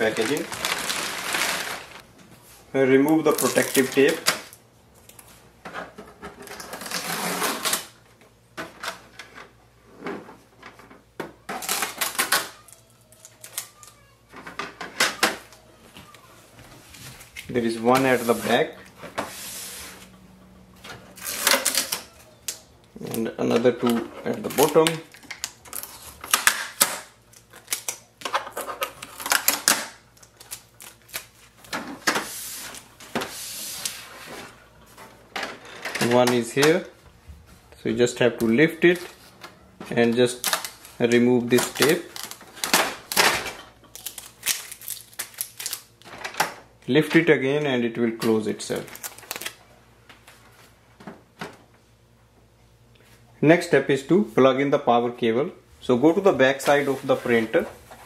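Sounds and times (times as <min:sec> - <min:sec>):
packing tape peeling: 0:06.6 - 0:08.0, 0:11.6 - 0:14.0, 0:21.1 - 0:23.2, 0:23.8 - 0:28.1, 0:28.8 - 0:34.1, 0:40.2 - 0:43.2, 0:43.9 - 0:46.1, 0:48.7 - 0:49.6.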